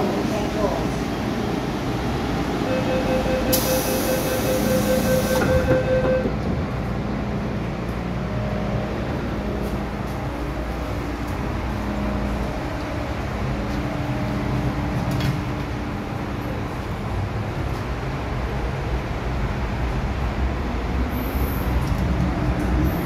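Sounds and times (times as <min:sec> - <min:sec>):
train doors closing: 0:00.0 - 0:08.1, 0:09.6 - 0:18.0
steady warning tone: 0:02.6 - 0:06.5.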